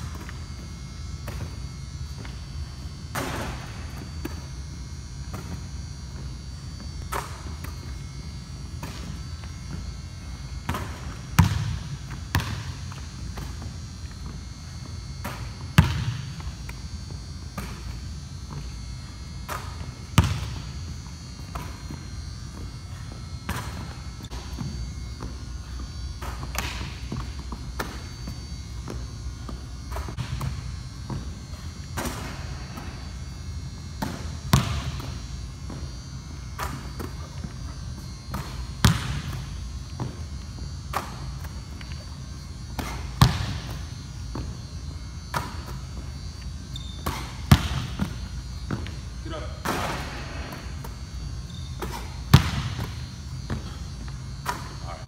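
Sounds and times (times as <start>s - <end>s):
steady low hum: 0.0s - 55.0s
ball banging off rim and backboard: 10.7s - 12.7s, 19.5s - 20.6s, 34.0s - 35.2s, 38.3s - 39.4s, 42.8s - 44.5s, 47.0s - 48.9s, 49.6s - 50.9s, 51.8s - 53.6s
basketball bouncing on wooden floor: 10.7s - 12.7s, 15.8s - 16.2s, 20.2s - 20.7s, 34.0s - 35.8s, 42.8s - 44.6s, 47.0s - 48.9s, 51.9s - 53.7s.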